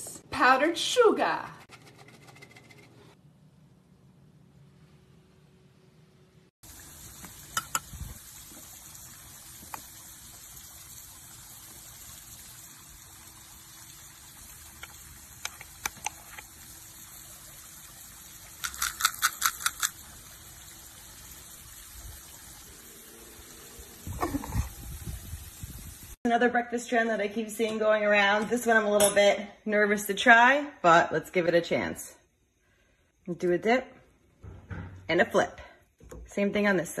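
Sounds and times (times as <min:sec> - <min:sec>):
sharp clicks: 0:18.6 - 0:20.0.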